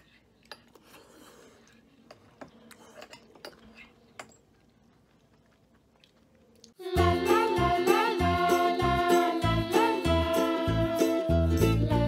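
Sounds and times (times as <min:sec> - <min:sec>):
tableware clinking: 0:02.1 - 0:04.5.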